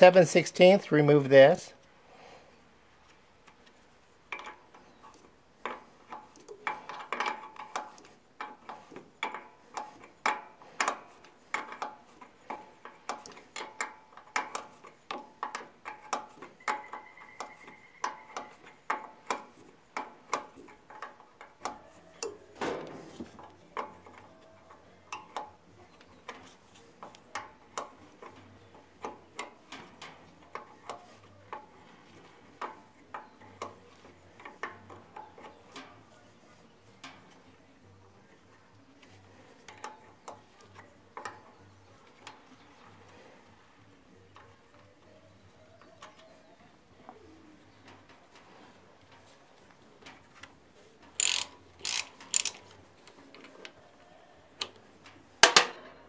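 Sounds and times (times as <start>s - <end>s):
ratchet wrench clicking: 51.2s - 52.7s.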